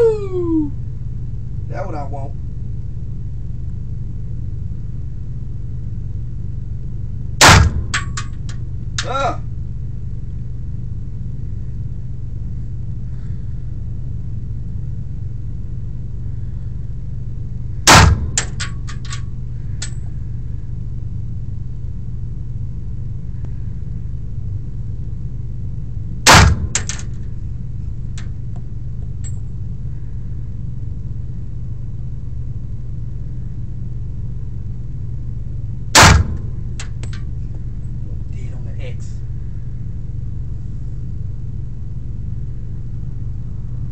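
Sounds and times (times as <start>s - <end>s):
steady low hum: 0.0s - 43.9s
pistol shots: 7.4s - 8.3s, 17.9s - 18.7s, 26.3s - 27.1s, 36.0s - 36.4s.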